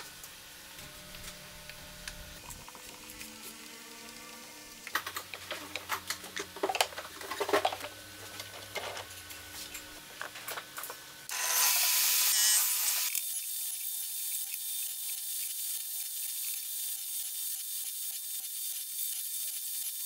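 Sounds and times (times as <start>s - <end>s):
saw blade cutting wood: 11.3s - 20.0s.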